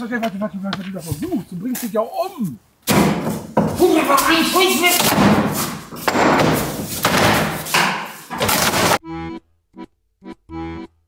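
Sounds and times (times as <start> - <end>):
hammer striking chisel: 5.0 - 9.0.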